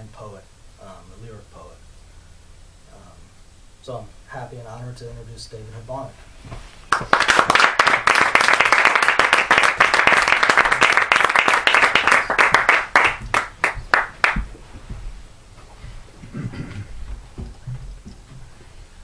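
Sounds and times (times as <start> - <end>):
audience applauding: 6.9 - 14.5.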